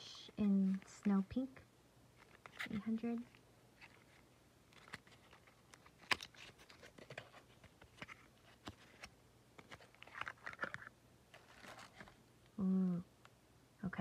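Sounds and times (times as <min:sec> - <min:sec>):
cardboard rustling: 0:02.2 - 0:12.2
person saying ooh: 0:12.6 - 0:13.1.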